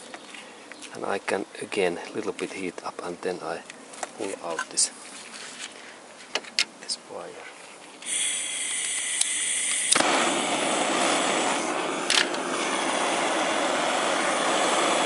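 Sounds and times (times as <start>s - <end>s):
blowtorch flame roaring: 8.0s - 15.0s
blowtorch hissing with faint whistle: 8.0s - 15.0s
blowtorch ignition pop: 8.0s - 15.0s.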